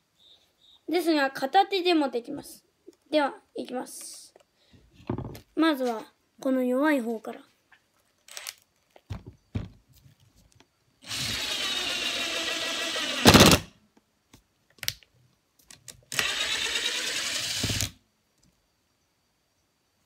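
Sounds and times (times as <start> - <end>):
impact driver driving a screw: 11.1 - 13.7, 16.1 - 18.0.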